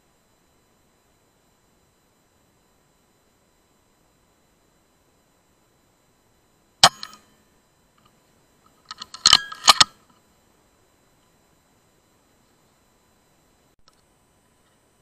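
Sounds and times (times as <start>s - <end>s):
air rifle firing: 6.8s - 7.2s
sharp metallic clicks: 6.8s - 7.3s, 8.8s - 10.0s.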